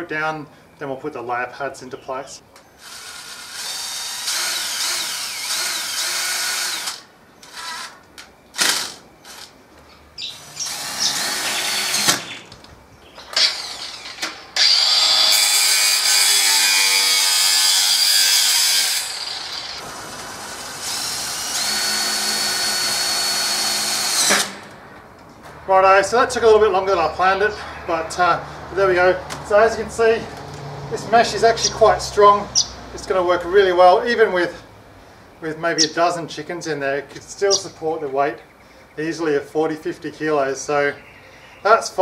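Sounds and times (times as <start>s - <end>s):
cordless drill driving screws: 2.8s - 8.0s, 8.6s - 9.5s, 10.3s - 12.4s, 13.3s - 19.8s, 20.4s - 24.7s.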